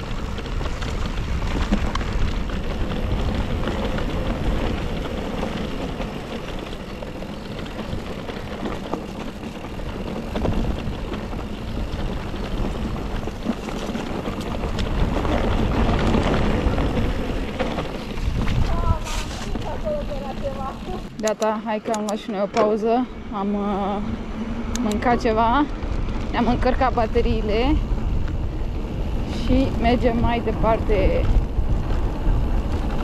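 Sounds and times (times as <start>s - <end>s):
bike clicks and rattles: 0.0s - 23.0s, 24.5s - 33.0s
bike tyre noise: 0.0s - 33.0s
wind rumble on microphone: 0.0s - 33.0s.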